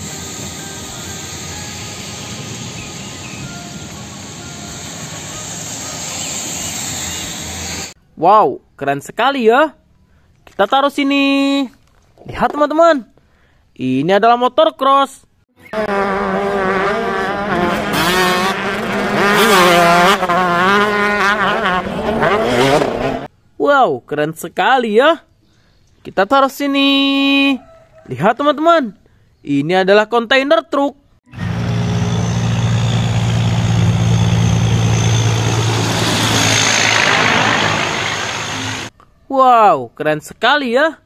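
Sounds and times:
diesel truck engine: 0.0s - 8.0s, 31.3s - 38.9s
motocross bike engine revving: 15.6s - 23.3s, 31.4s - 38.9s
tyre and road noise: 15.7s - 23.3s, 31.3s - 38.9s.

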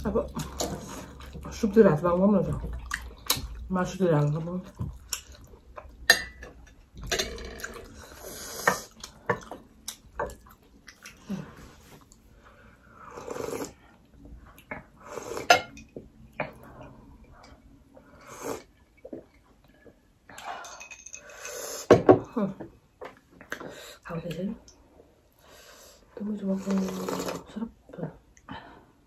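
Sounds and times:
chewing: 2.5s - 3.7s, 8.8s - 12.2s.

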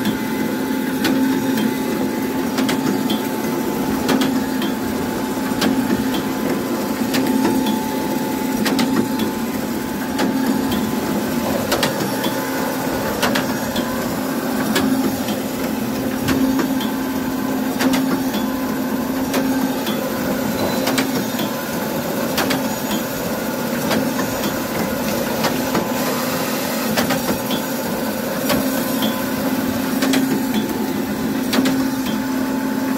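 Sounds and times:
machine humming: 0.0s - 32.9s
sharp mechanical clack: 22.4s - 23.0s.

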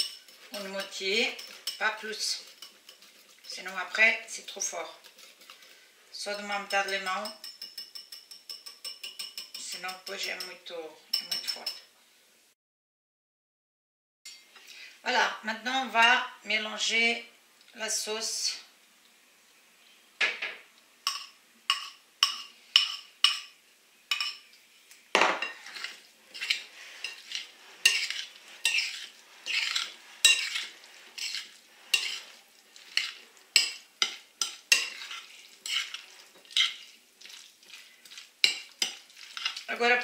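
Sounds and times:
metal spoon stirring in glass bowl: 0.0s - 11.9s, 21.1s - 23.5s, 24.1s - 24.5s, 25.4s - 40.0s
spoon knocking bowl: 6.7s - 10.6s.

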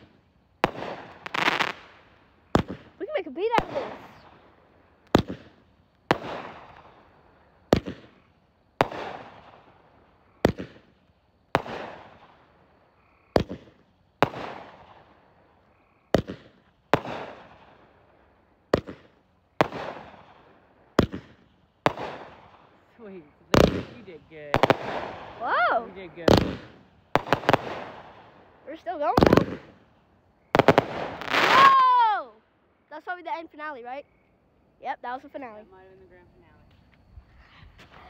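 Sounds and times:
firework launch pops: 0.0s - 4.4s, 5.0s - 7.0s, 7.7s - 8.2s, 8.8s - 9.7s, 10.4s - 12.4s, 13.3s - 15.1s, 16.1s - 17.7s, 18.7s - 22.7s, 23.5s - 28.3s, 29.1s - 29.9s, 30.6s - 31.9s.

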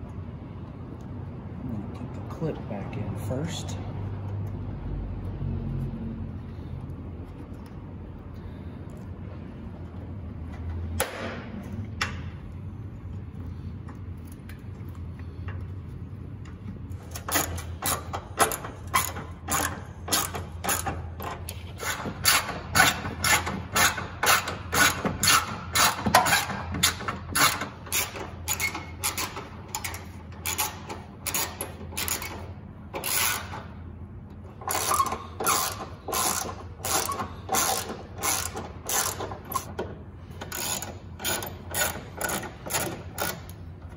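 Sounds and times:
hand ratchet clicking: 17.0s - 33.6s, 34.6s - 43.9s.

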